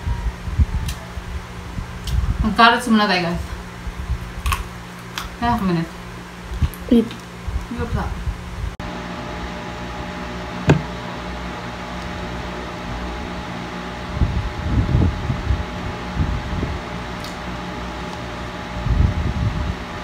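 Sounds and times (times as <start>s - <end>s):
electric fan humming: 0.0s - 20.0s
low muffled knocks: 10.6s - 10.9s.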